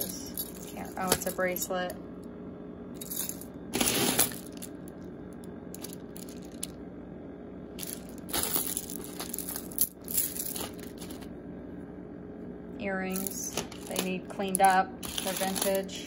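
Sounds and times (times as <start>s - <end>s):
jewelry clinking and rattling: 0.0s - 1.6s, 2.9s - 5.0s, 5.7s - 6.8s, 7.8s - 11.3s, 13.1s - 16.0s.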